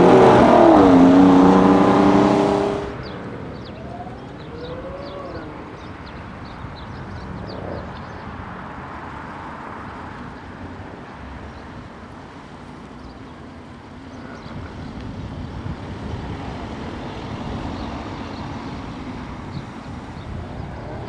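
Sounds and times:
car engine pulling away: 0.0s - 5.9s
distant car engine revving: 0.0s - 6.1s
birds chirping: 0.0s - 9.2s
outdoor background noise: 0.0s - 21.0s.

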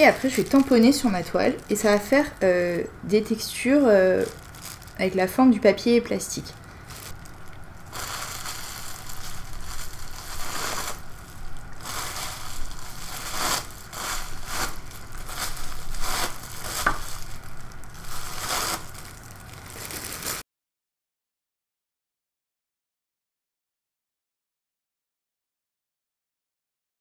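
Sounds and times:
plastic wrap crinkling on canvas: 0.0s - 20.4s.

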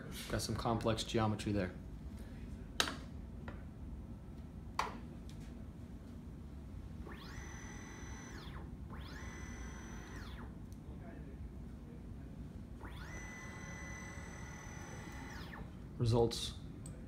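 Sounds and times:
motor whirring: 7.0s - 10.7s, 12.8s - 15.8s.

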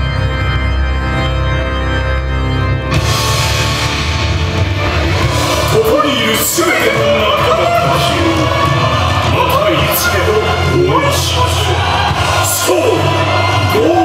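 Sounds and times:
organ chords over heavy bass: 0.0s - 11.0s
person's voice: 5.6s - 14.0s.

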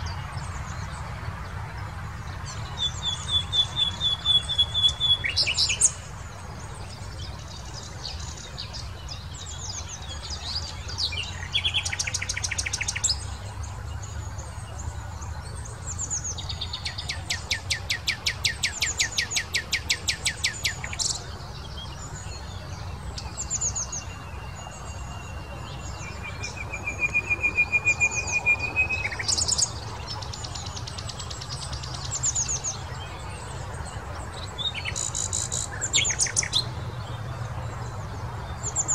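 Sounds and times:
nightingale singing: 2.5s - 6.1s.

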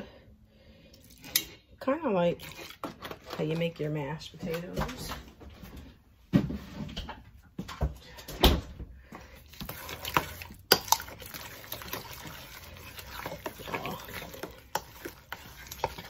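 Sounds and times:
spoon scraping bowl: 2.2s - 4.6s, 9.4s - 16.0s.

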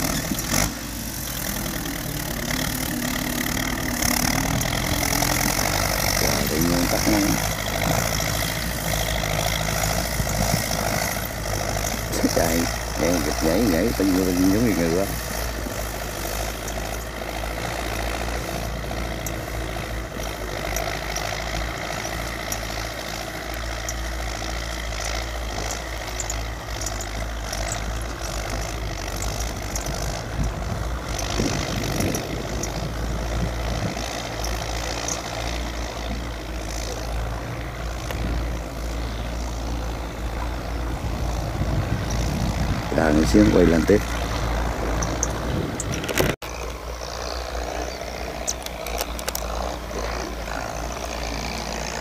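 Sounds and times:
tractor diesel engine under load: 0.0s - 52.0s.

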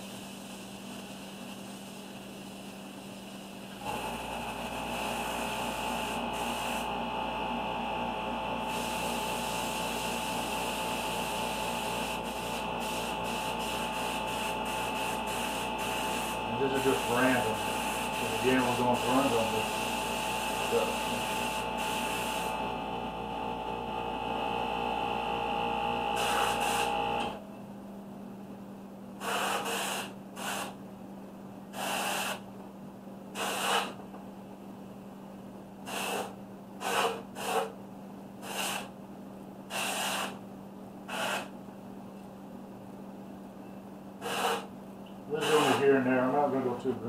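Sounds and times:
motor running: 3.8s - 27.4s, 45.3s - 46.0s
airbrush hissing bursts: 4.8s - 6.9s, 8.7s - 22.6s, 26.2s - 26.9s, 29.2s - 30.8s, 31.8s - 32.4s, 33.4s - 34.0s, 35.9s - 37.7s, 38.4s - 38.9s, 39.7s - 40.4s, 41.1s - 41.5s, 44.2s - 44.7s, 45.4s - 45.8s.

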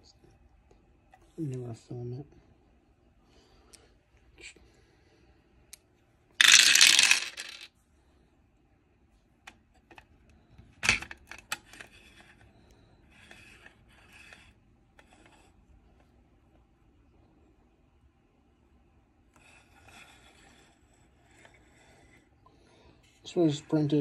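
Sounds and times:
dice clicks: 6.4s - 7.7s
plastic dice rattling: 6.4s - 7.7s.

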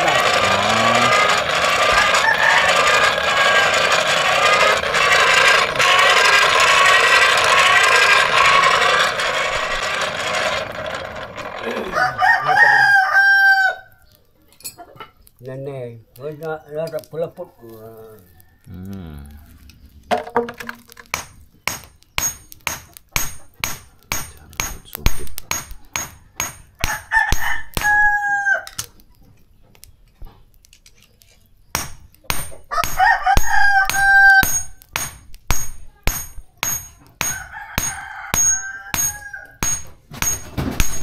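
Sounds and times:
rooster crowing: 0.0s - 6.9s, 11.8s - 13.9s, 17.6s - 19.9s, 26.8s - 28.8s, 32.6s - 34.8s, 37.2s - 39.8s
sharp knocks: 20.1s - 28.0s, 31.8s - 41.0s.

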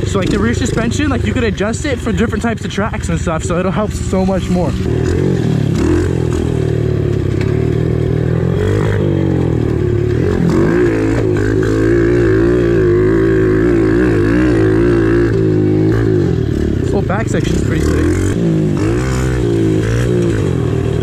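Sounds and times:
small motorcycle engine revving: 3.2s - 21.0s.

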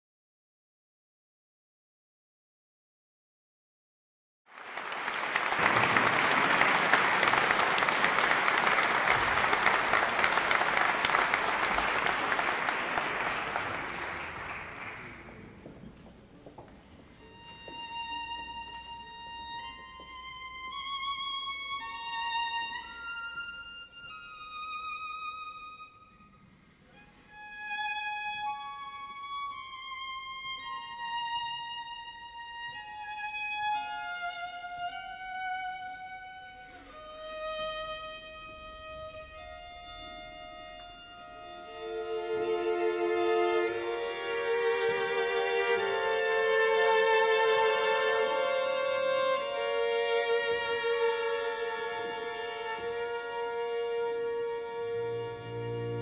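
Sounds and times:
violin playing slow high notes: 17.0s - 56.0s.

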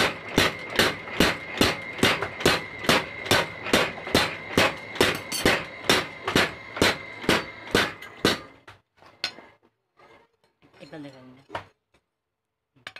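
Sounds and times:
power hammer pounding metal: 0.0s - 8.7s.

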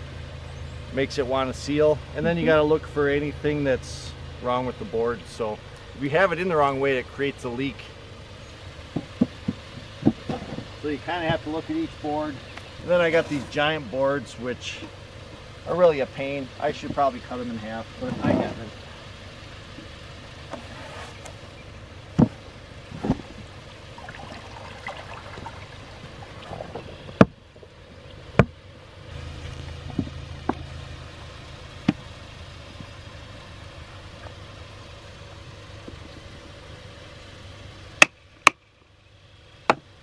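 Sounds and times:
water rushing over boards: 24.0s - 27.1s.

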